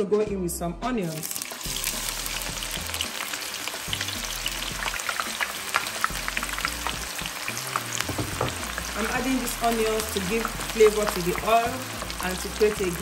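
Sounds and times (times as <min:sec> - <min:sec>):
onions sizzling in oil: 0:01.1 - 0:13.0.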